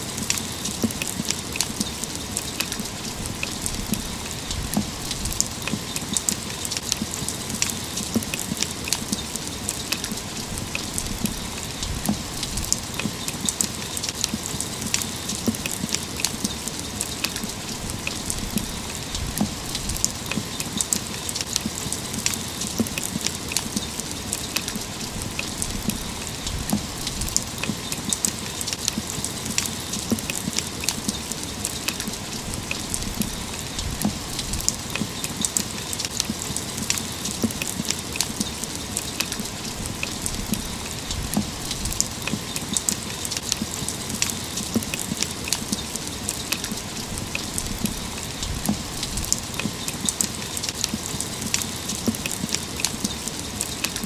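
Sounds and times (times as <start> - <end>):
raindrops ticking: 0.0 - 54.0
steady rain hiss: 0.0 - 54.0.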